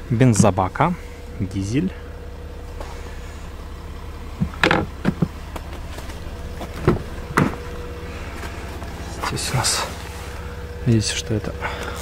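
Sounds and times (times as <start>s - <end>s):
diesel engine idling: 0.0s - 12.0s
sharp knocks and clunks: 4.4s - 7.8s.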